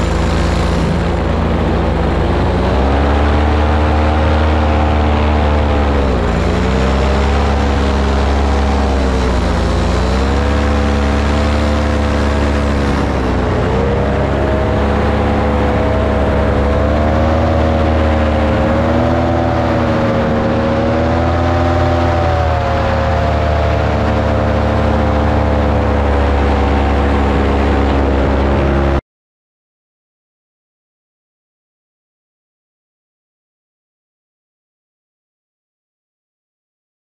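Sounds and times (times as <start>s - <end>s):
rush of air: 0.0s - 7.5s
paramotor engine and propeller: 0.0s - 29.0s.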